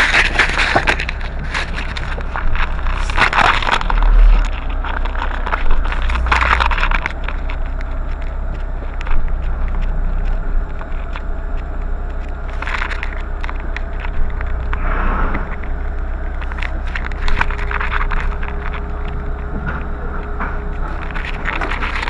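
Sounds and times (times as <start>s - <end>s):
car interior rumble: 0.0s - 22.0s.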